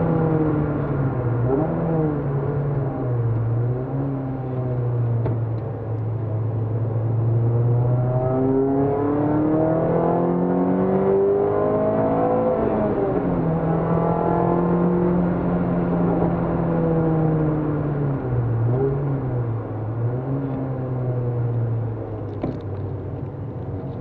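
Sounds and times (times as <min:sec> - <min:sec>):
car engine revving from inside cabin: 0:07.1 - 0:21.6.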